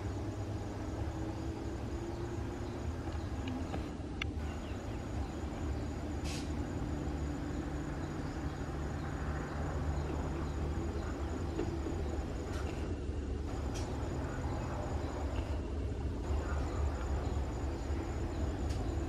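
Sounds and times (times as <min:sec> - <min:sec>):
locomotive diesel engine rumbling: 0:00.0 - 0:19.0
brief hiss: 0:06.2 - 0:06.6.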